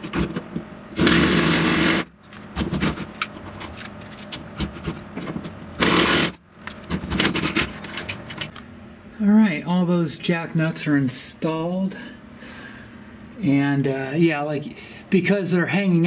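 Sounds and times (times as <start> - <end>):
tool and nut rattling: 0.0 - 8.6
power drill bursts: 0.9 - 2.1, 5.8 - 6.4.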